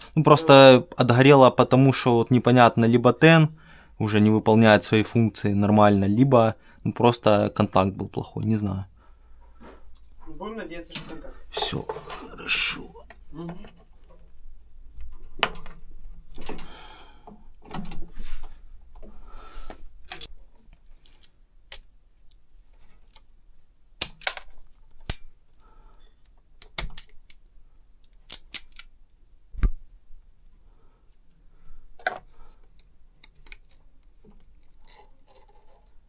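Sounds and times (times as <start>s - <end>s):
wire strippers clicking and snipping: 20.0s - 20.3s, 24.0s - 25.4s, 26.2s - 29.0s.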